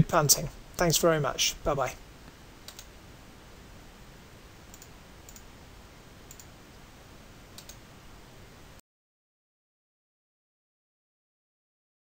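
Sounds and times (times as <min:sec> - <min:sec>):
low steady hiss: 0:00.0 - 0:08.8
computer mouse clicks: 0:02.6 - 0:02.9, 0:04.7 - 0:05.5, 0:06.3 - 0:06.6, 0:07.5 - 0:07.8.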